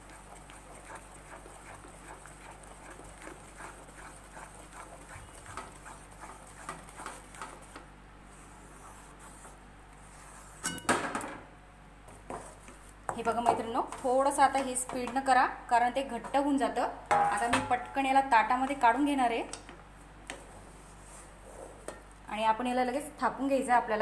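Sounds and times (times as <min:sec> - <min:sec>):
spatula scraping batter in metal pan: 0:00.0 - 0:07.8.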